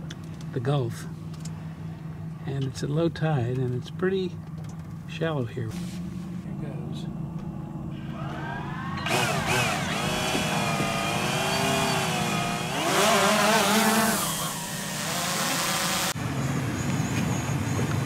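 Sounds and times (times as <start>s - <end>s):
boat engine throttling up: 7.3s - 16.2s.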